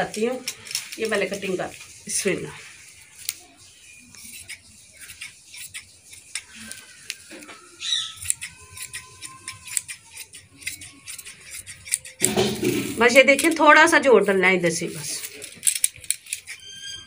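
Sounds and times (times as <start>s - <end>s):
shears snipping fabric: 3.2s - 3.5s, 4.1s - 12.4s, 13.0s - 16.6s.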